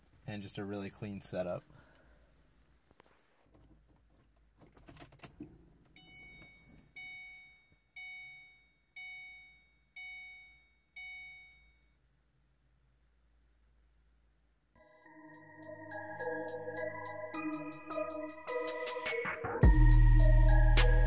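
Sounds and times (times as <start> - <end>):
dashboard warning chime: 5.9 - 12.0.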